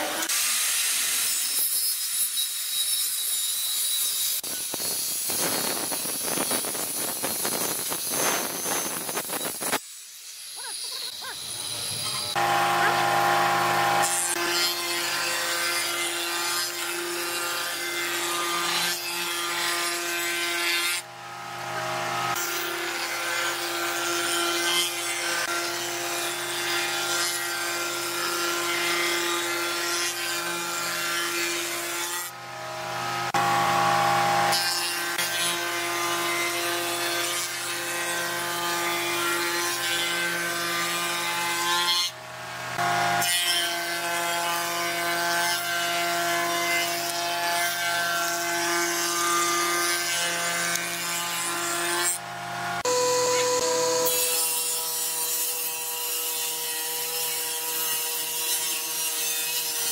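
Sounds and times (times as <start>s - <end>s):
spindle moulder cutting wood: 10.6s - 18.8s.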